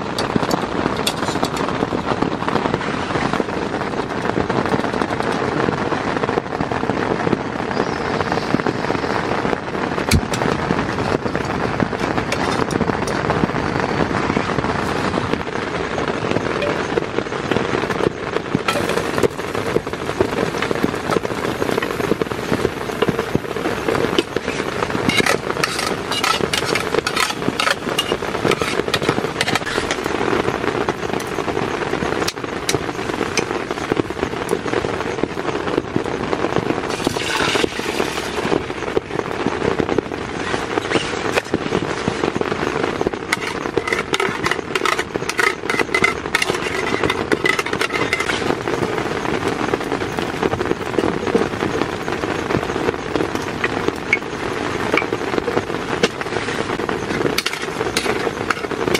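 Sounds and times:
heavy rain on tent: 0.0 - 58.9
crisp crackling: 17.8 - 35.4, 36.6 - 58.9.

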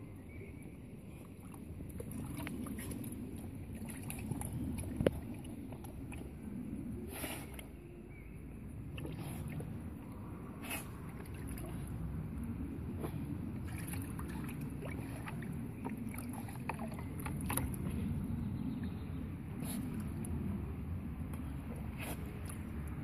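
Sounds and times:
steady low rumble: 0.0 - 23.0
water splashing in paddling pool: 1.4 - 7.6, 8.8 - 18.2.

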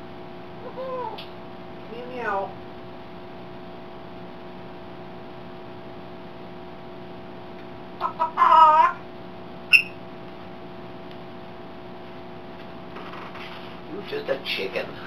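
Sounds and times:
steady hum: 0.0 - 15.0
parrot clucking: 8.0 - 9.0, 9.7 - 10.0
parrot squawk: 8.0 - 9.0, 9.7 - 9.9
parrot high note: 9.7 - 10.0.

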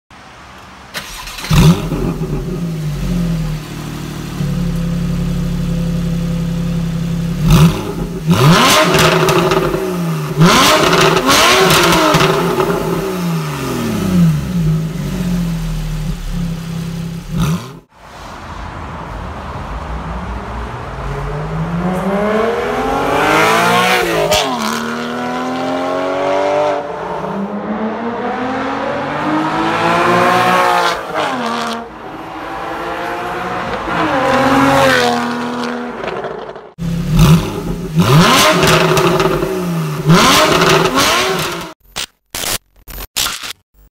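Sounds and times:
car engine idling and revving: 0.2 - 41.8
car accelerating and driving past: 17.3 - 41.7.

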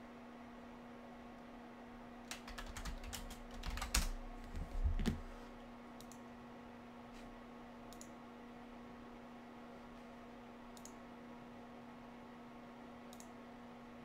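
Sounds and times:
steady low hum: 0.0 - 14.0
computer keyboard typing: 2.3 - 4.2.

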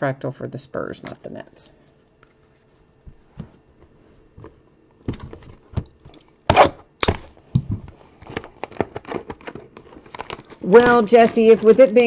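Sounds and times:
cards knocking and clicking: 4.4 - 11.9.

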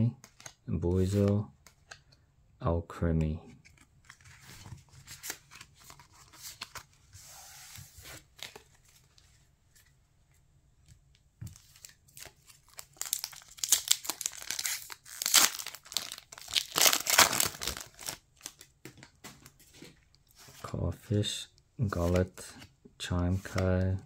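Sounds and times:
foil wrapper crinkling and tearing: 12.1 - 18.6.

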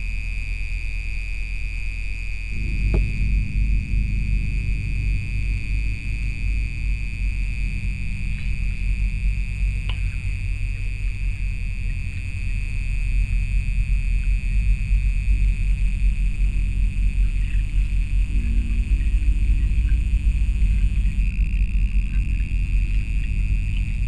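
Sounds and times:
low steady rumble: 0.0 - 24.0
high steady tone: 2.5 - 24.0
click: 9.8 - 10.1.

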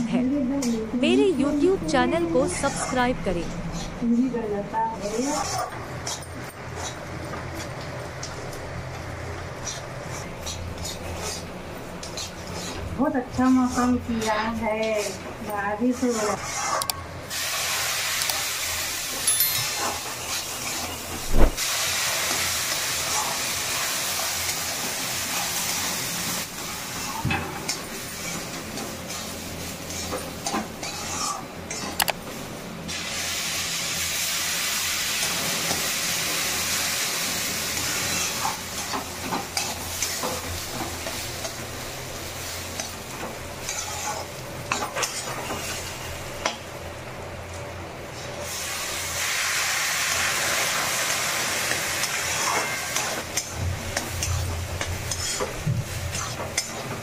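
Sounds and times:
water sizzling in hot wok: 17.2 - 19.3, 20.0 - 31.4, 32.5 - 46.5, 48.4 - 57.0.

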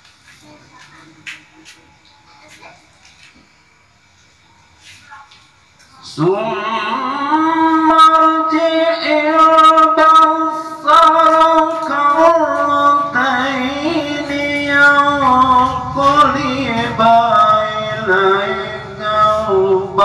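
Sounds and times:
person reciting in melodic chant: 4.8 - 20.0.

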